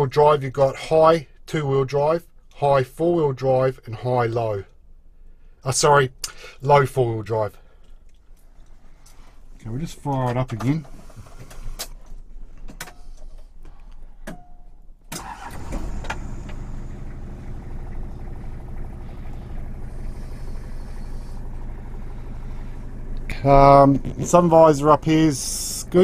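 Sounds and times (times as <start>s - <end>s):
diesel engine cranking and idling: 15.1s - 26.0s.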